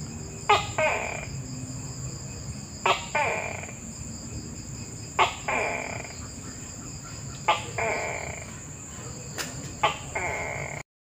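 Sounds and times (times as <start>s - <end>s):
gecko calling: 0.2s - 4.0s, 4.8s - 10.8s.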